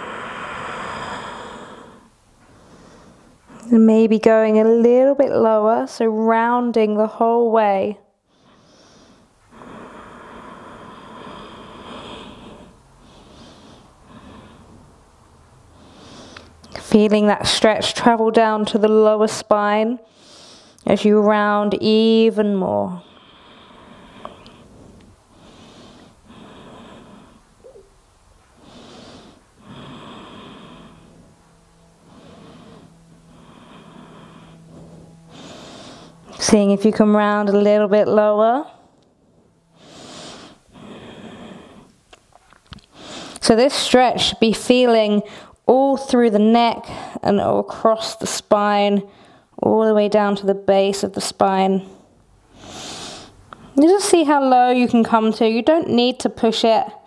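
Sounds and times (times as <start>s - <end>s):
woman breathing: 0.0s - 3.7s, 8.2s - 16.8s, 20.0s - 20.9s, 22.7s - 44.2s, 45.2s - 45.6s, 49.0s - 49.6s, 51.8s - 53.8s.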